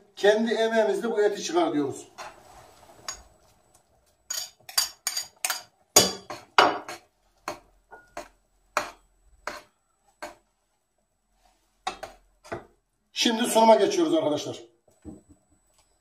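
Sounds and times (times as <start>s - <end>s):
spoon clinking on plate and pot: 3.0s - 3.3s, 4.3s - 7.0s.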